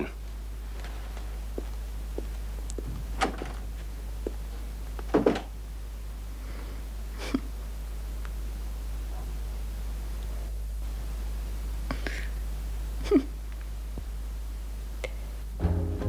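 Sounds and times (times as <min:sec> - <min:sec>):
steady low hum: 0:00.0 - 0:16.0
soft knocks and thuds: 0:05.1 - 0:05.5.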